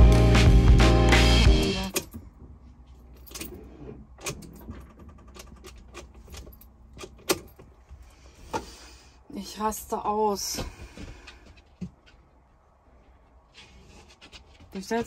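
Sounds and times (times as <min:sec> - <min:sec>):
keys jangling: 0:03.0 - 0:03.6, 0:04.3 - 0:07.7.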